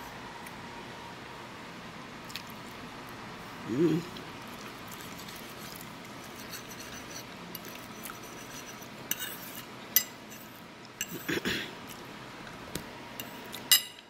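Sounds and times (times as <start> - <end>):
fork scraping ceramic plate: 5.6 - 11.3.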